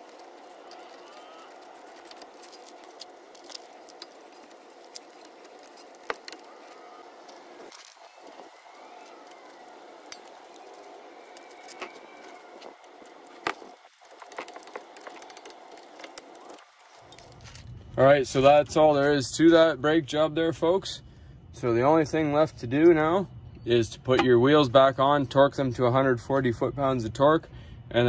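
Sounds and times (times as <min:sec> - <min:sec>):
faint background noise: 0:00.0 - 0:28.0.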